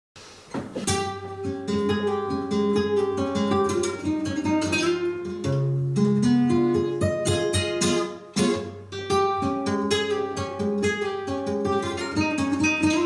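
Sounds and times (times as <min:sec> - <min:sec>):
flamenco guitars playing: 0:00.6 - 0:13.0.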